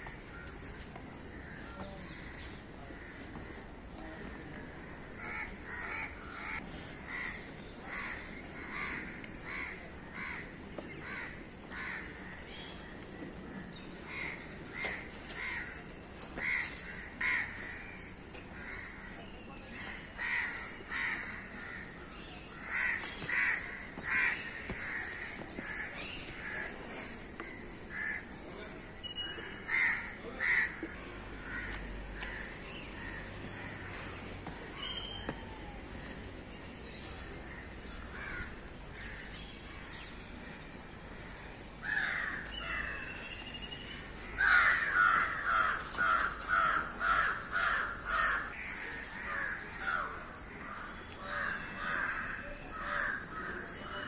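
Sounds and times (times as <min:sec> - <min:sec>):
crows cawing: 0:01.3 - 0:12.4, 0:14.1 - 0:19.2, 0:19.9 - 0:28.4, 0:29.5 - 0:34.6, 0:37.4 - 0:39.3, 0:41.8 - 0:43.2, 0:44.0 - 0:53.8.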